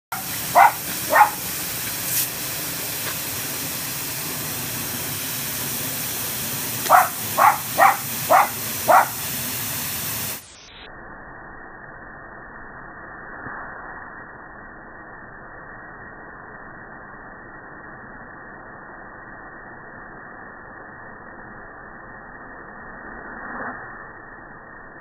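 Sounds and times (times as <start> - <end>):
puppy barking: 0.1 - 1.6, 6.8 - 9.3
hose spray nozzle hissing: 0.1 - 10.5.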